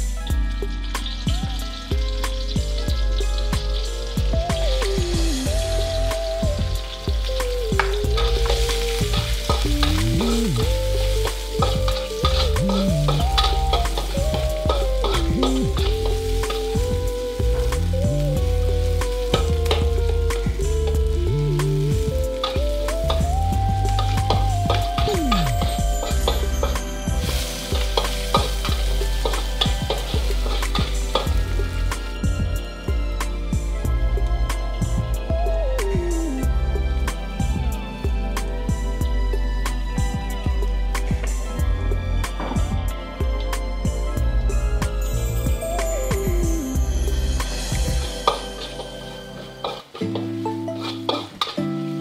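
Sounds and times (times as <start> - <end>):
oil sizzling: 0.0 - 41.6, 42.2 - 52.0
background music with steady beat: 0.0 - 52.0
slow melody: 0.0 - 52.0
metal spatula scraping wok: 7.8 - 20.0, 22.4 - 32.3, 47.4 - 52.0.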